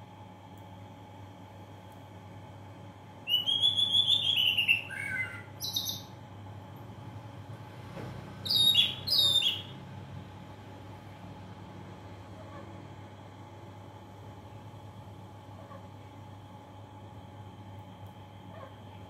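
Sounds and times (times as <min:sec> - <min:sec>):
bird chirping: 0:03.3 - 0:06.2, 0:08.4 - 0:09.8.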